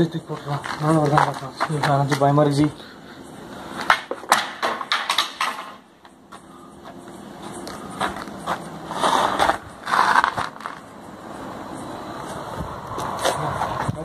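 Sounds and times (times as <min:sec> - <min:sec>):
wooden stick clattering: 0:03.8 - 0:05.8.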